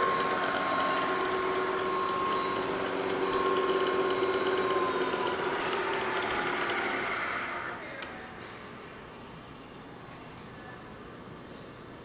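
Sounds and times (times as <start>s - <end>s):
milling machine whine: 0.0s - 7.8s.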